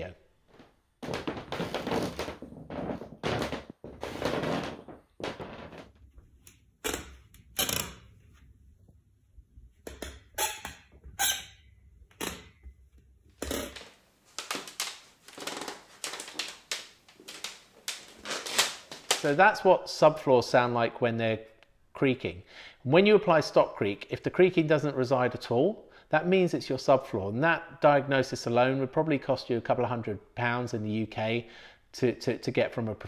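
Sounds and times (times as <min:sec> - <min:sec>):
wooden floor creaking under footsteps: 0:00.4 - 0:08.1, 0:13.4 - 0:19.4.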